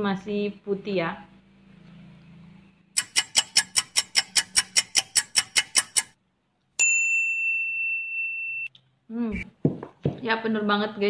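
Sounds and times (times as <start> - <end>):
sharp ticks: 3.0 - 6.2
bright ding: 6.8 - 8.7.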